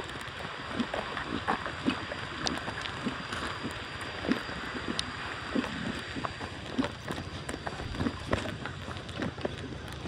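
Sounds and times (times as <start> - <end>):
steady outdoor hiss: 0.0 - 10.0
footsteps on dirt path: 6.0 - 10.0.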